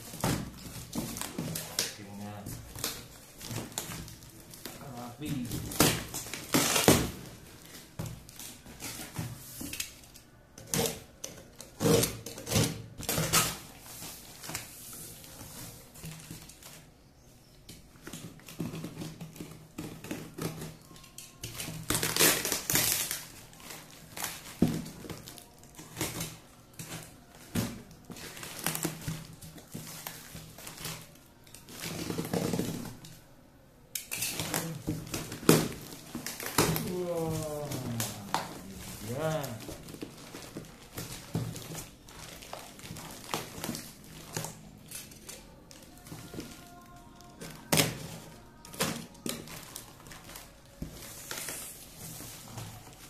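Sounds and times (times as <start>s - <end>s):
cardboard and tape ripping: 0.0s - 9.2s, 21.5s - 31.1s, 34.0s - 52.9s.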